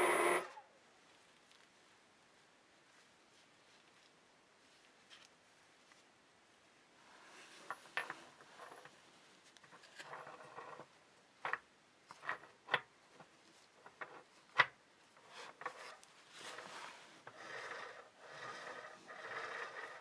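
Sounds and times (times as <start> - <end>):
rubbing and scraping: 7.0 - 20.0.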